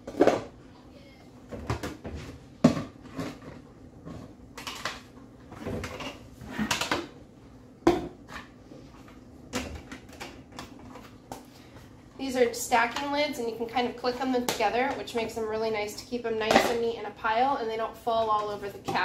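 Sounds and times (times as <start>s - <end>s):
plastic containers clattering: 0.0s - 0.6s, 1.5s - 7.2s.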